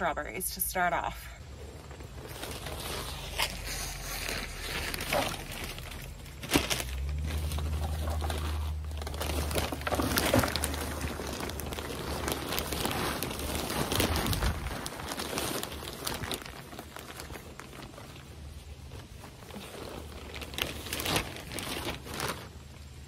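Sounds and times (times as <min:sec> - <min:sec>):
low steady hum: 0:00.0 - 0:23.0
plastic bag crinkling: 0:00.7 - 0:23.0
soil pouring and pattering: 0:00.7 - 0:23.0
gloved hands spreading soil: 0:01.5 - 0:06.1.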